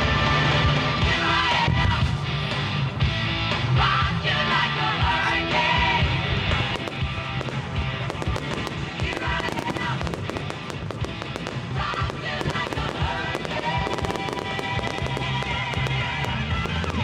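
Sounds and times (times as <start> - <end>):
music playing: 0.0 - 17.0
fireworks popping and crackling: 6.4 - 17.0.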